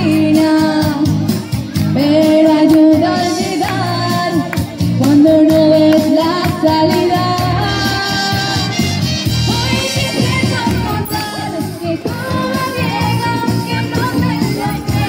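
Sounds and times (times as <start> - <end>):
accompaniment music: 0.0 - 15.0
girl singing into microphone: 9.5 - 15.0.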